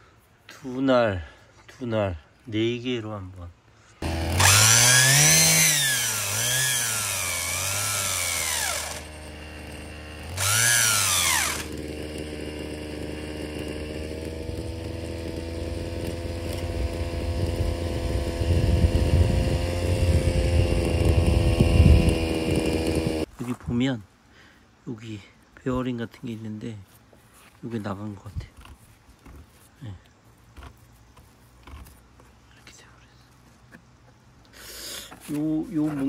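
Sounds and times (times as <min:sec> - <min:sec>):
brush cutter engine revving: 0:04.0 - 0:23.3.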